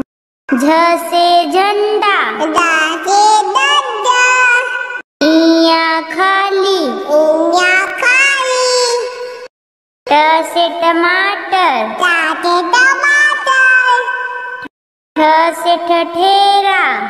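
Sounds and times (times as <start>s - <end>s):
child singing: 0.5s - 9.5s, 10.1s - 14.2s.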